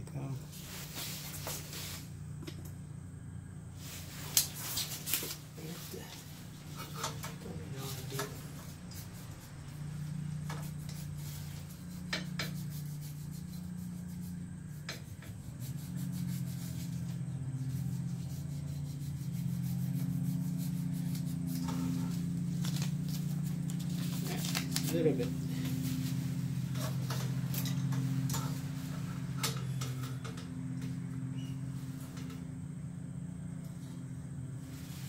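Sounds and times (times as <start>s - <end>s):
steady low hum: 0.0s - 35.0s
paper rubbing and rustling: 3.9s - 14.4s, 15.6s - 30.1s.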